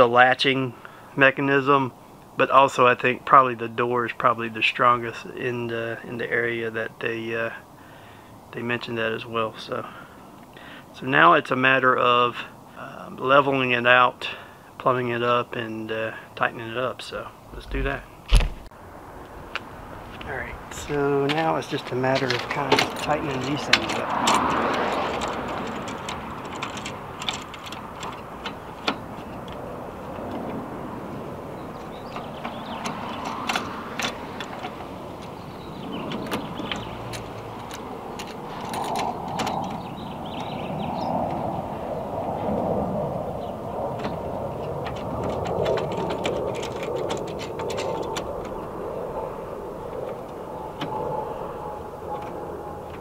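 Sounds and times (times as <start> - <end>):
background rumble: 17.1 - 33.2.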